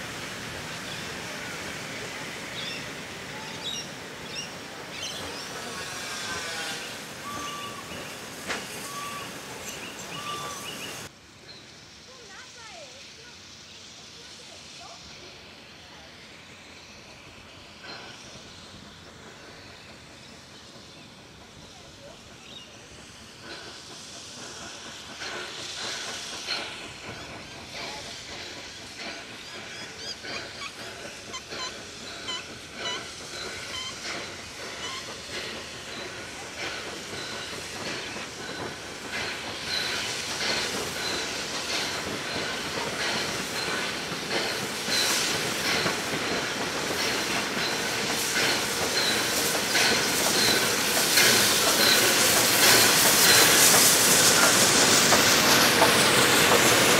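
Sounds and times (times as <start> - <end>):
steam hissing: 0.0 - 56.9
high wheel squeaks: 0.9 - 11.0, 23.4 - 56.9
wheels clicking over rail joints: 23.4 - 56.9.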